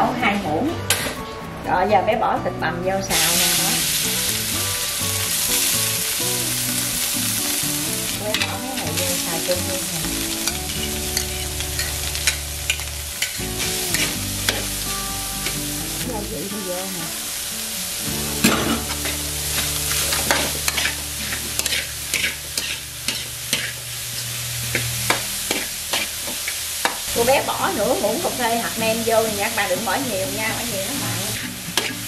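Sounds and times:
frying sizzle: 0:03.1 - 0:32.0
metal spatula scraping a wok: 0:08.3 - 0:09.8, 0:10.4 - 0:14.8, 0:18.4 - 0:27.0, 0:30.8 - 0:32.0.

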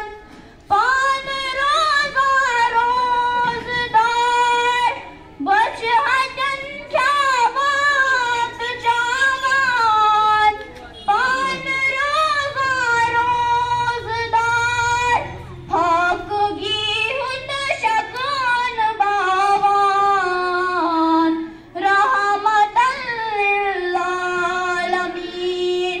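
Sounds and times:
child singing unaccompanied: 0:11.3 - 0:26.0.

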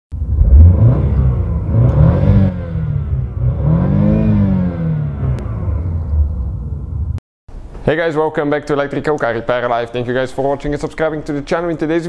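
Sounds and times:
car engine revving: 0:00.2 - 0:07.2.

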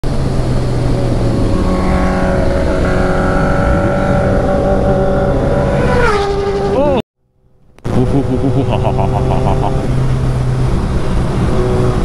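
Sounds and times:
motorcycle engine running: 0:00.1 - 0:07.0, 0:07.8 - 0:12.0.

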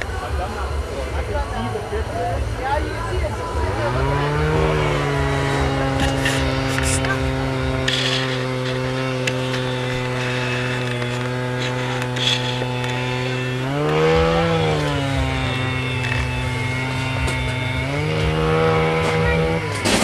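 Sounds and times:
small engine idling and revving: 0:00.0 - 0:20.0.

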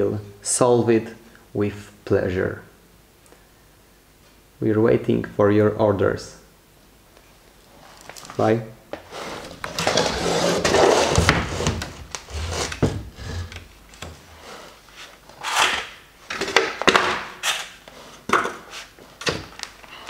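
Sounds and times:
mould panel scraping and rubbing: 0:09.0 - 0:13.7.

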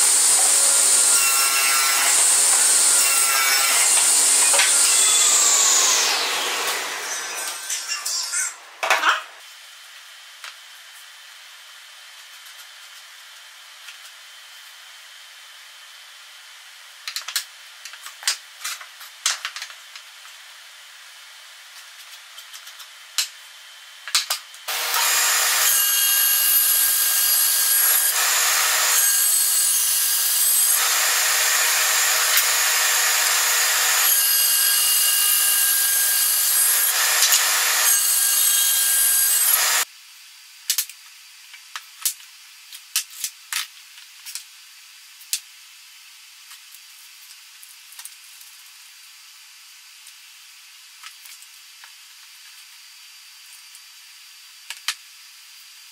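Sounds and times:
band saw cutting wood: 0:00.0 - 0:09.4, 0:24.7 - 0:39.9.

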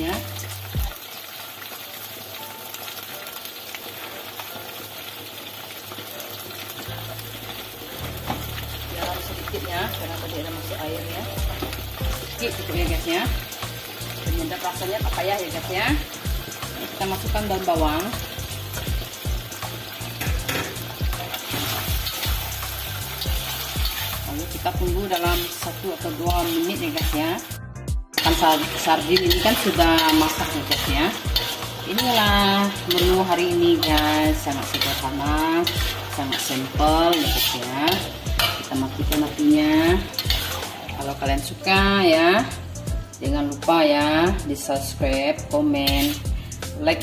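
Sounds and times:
food sizzling in a wok: 0:00.0 - 0:47.0
metal spatula stirring: 0:11.4 - 0:27.5, 0:28.2 - 0:42.0, 0:45.8 - 0:46.4.

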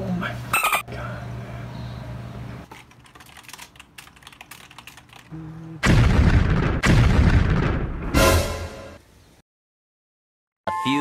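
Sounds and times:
keyboard typing: 0:02.7 - 0:05.3
harsh sound effect blasts: 0:05.8 - 0:09.0.

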